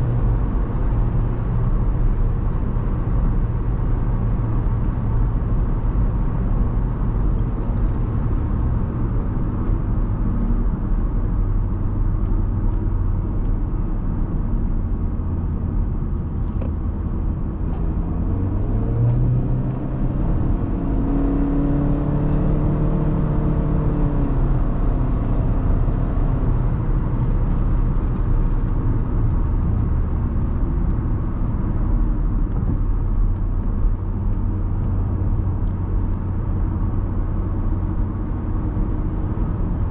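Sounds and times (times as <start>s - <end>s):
tyre and engine rumble in car: 0.0s - 39.9s.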